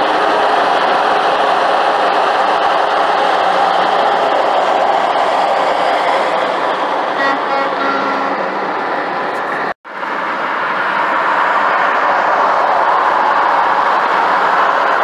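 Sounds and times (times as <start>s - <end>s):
road and wind noise from car: 0.0s - 15.0s.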